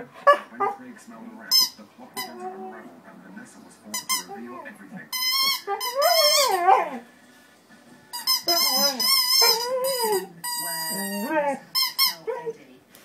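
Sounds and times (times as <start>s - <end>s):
rubber squeaky toy squeaking: 1.5s - 2.4s, 3.9s - 4.4s, 5.1s - 6.8s, 8.1s - 12.3s
dog howling vocalizations: 10.9s - 12.5s.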